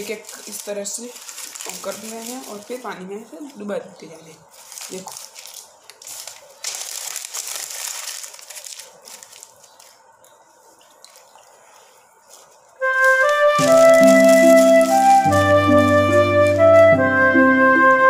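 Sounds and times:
newspaper crumpling: 0.0s - 3.7s, 4.4s - 10.1s, 11.1s - 16.8s
background music: 12.8s - 18.0s.

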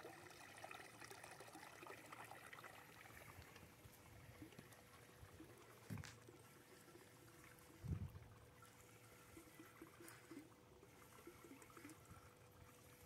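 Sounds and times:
water trickling and lapping: 0.0s - 13.0s.

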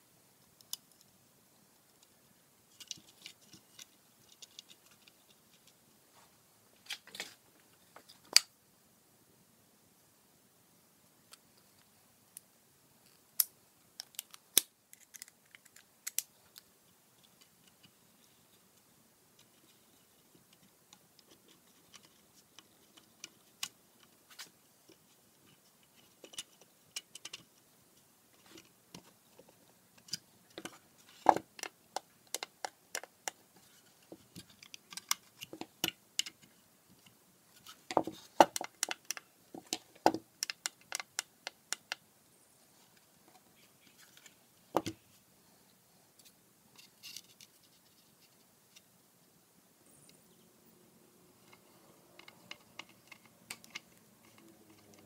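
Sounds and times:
small clicks and knocks: 19.4s - 27.6s, 28.4s - 42.0s, 51.4s - 55.0s.

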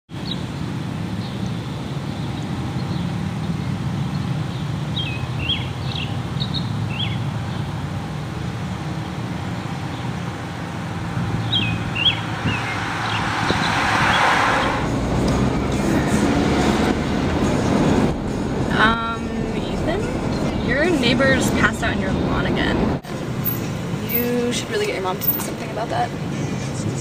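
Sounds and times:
birds chirping: 0.1s - 7.8s, 11.3s - 14.8s
car driving past: 10.9s - 18.8s.

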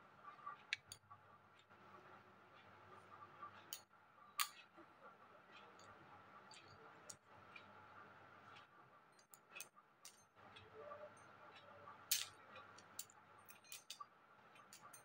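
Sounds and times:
bangles clicking together: 12.1s - 15.0s.

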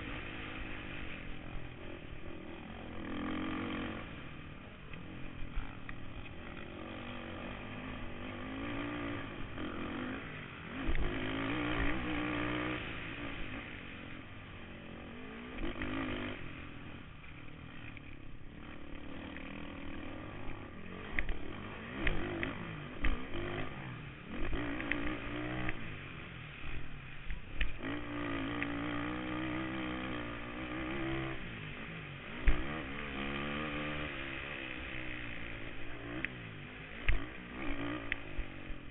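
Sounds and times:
quad engine revving: 0.0s - 4.3s, 5.4s - 13.8s, 14.7s - 17.0s, 18.5s - 26.1s, 27.6s - 38.9s.

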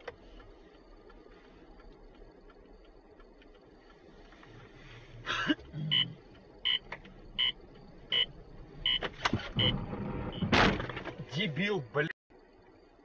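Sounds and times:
car warning beeps: 5.9s - 10.6s.

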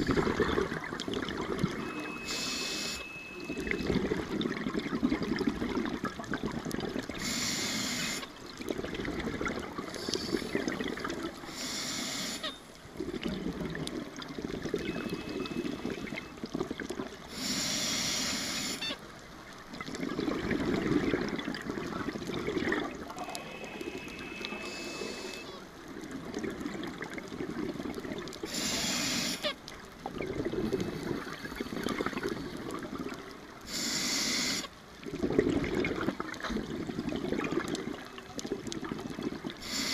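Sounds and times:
bubbling exhalation: 0.0s - 1.9s, 20.0s - 25.4s, 30.1s - 33.1s, 35.0s - 39.7s
regulator inhalation hiss: 2.2s - 3.0s, 7.2s - 8.2s, 11.5s - 12.5s, 17.3s - 18.8s, 24.6s - 25.5s, 28.5s - 29.5s, 33.7s - 34.7s, 39.6s - 39.9s.

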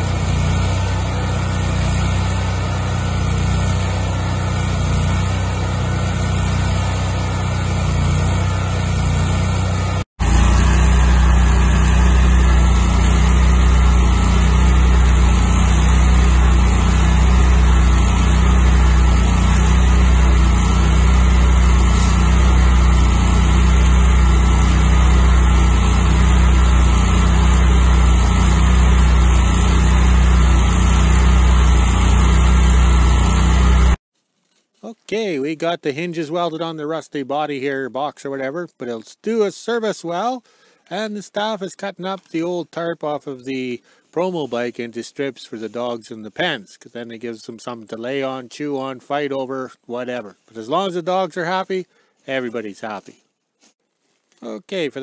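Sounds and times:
welder engine running: 0.0s - 34.0s
welding arc hissing and crackling: 0.0s - 34.0s.

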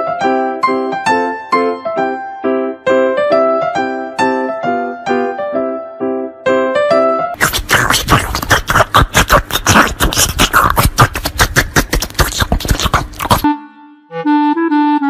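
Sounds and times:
fast beatboxing: 7.4s - 13.5s
melody of clear held notes: 13.4s - 15.0s.

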